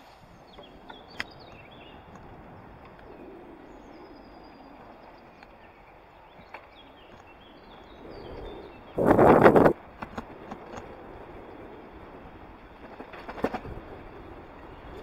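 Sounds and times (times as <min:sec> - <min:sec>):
small birds chirping: 0:00.3 - 0:09.8.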